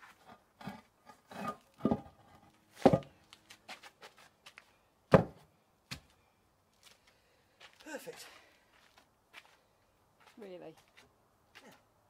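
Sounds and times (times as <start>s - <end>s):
spade scraping on paving: 0.0s - 3.0s
paving slab thumping: 0.2s - 2.2s, 2.8s - 3.2s, 5.1s - 6.1s.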